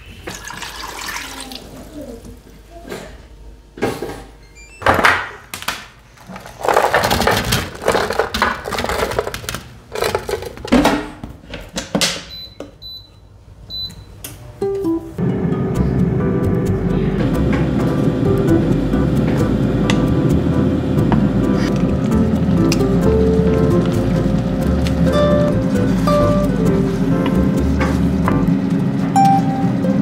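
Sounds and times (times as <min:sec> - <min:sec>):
water pouring into frying pan: 0:00.3 - 0:01.6
kitchen handling noises: 0:03.8 - 0:12.4
air fryer control panel beeps: 0:12.3 - 0:14.2, 0:29.2 - 0:30.0.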